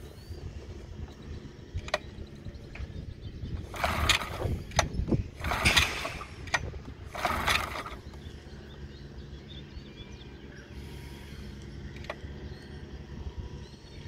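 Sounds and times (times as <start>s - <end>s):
recoil starter cord pulled: 1.7s - 2.1s, 3.6s - 8.3s.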